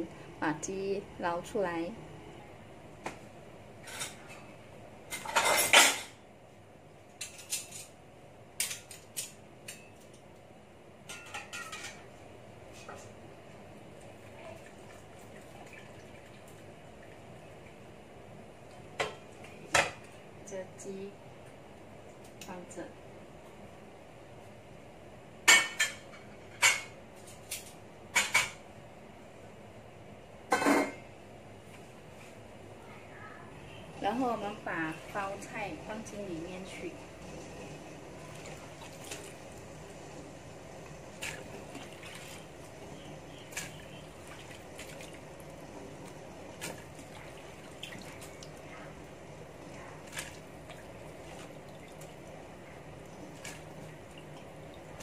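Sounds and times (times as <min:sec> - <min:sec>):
metal utensils and pots clinking: 0:05.1 - 0:06.2, 0:11.1 - 0:12.1, 0:30.5 - 0:31.0.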